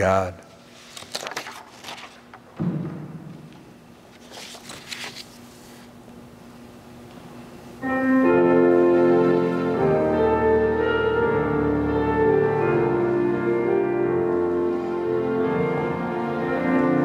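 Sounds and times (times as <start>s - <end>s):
organ playing sustained chords: 6.3s - 17.0s.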